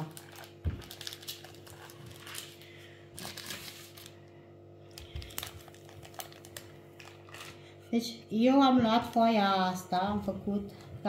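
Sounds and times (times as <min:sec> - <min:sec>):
paper crinkling: 0:00.0 - 0:04.2, 0:04.9 - 0:07.6
faint steady hum: 0:00.0 - 0:11.0.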